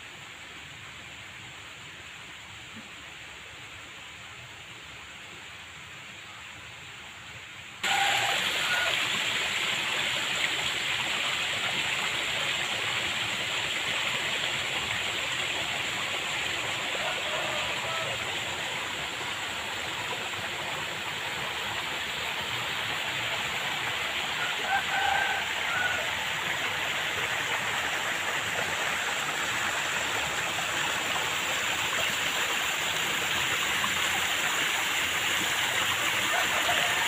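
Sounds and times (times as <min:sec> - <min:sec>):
water rushing in a ditch: 0:07.8 - 0:37.0.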